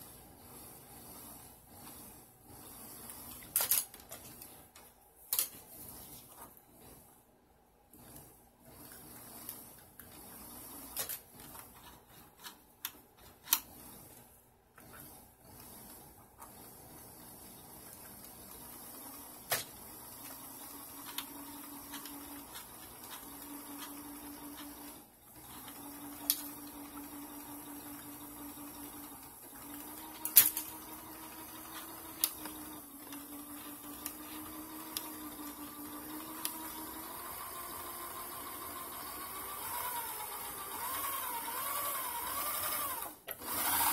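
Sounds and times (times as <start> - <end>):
sewing machine motor humming: 14.8 - 43.9.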